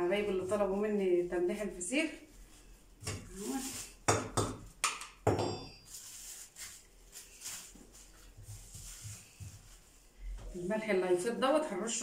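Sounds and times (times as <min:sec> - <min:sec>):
salt rubbing and light knocks: 0:05.8 - 0:10.6.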